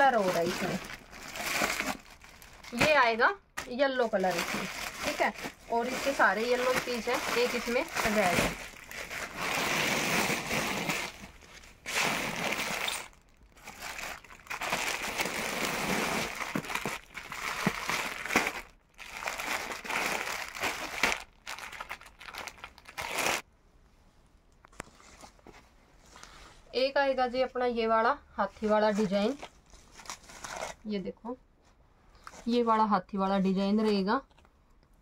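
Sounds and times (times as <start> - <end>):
plastic packets crinkling: 0.0 - 23.4.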